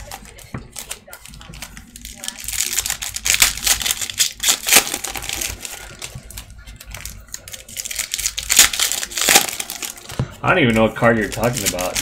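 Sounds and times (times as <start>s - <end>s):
cards flipped and shuffled: 0.0s - 12.0s.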